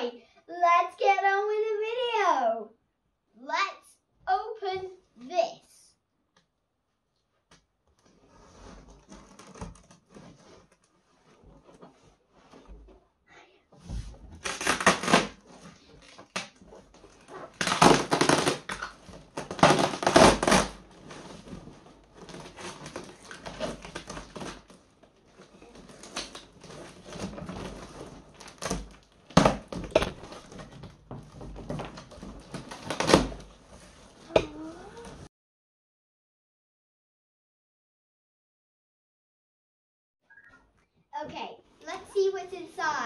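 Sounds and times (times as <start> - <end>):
cardboard rustling and scraping: 7.9 - 13.1, 13.8 - 35.3
packing tape ripping: 14.4 - 21.5, 22.2 - 24.8, 25.4 - 30.8, 32.0 - 33.5.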